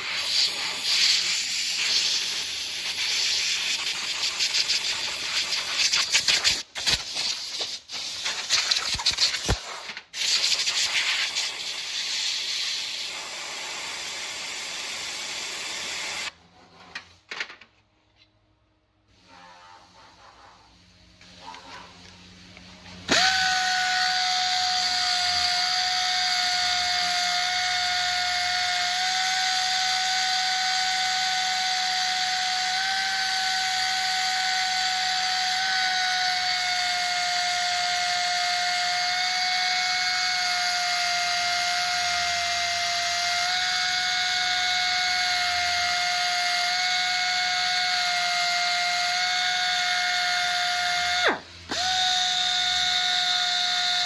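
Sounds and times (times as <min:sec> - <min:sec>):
belt sander whining: 0:22.5 - 0:54.0.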